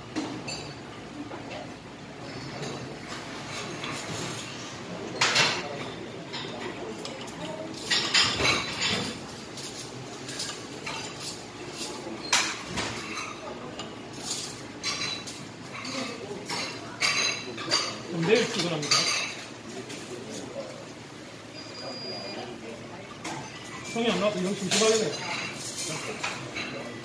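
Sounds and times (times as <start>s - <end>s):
utensils clinking on pots: 0.1s - 27.0s.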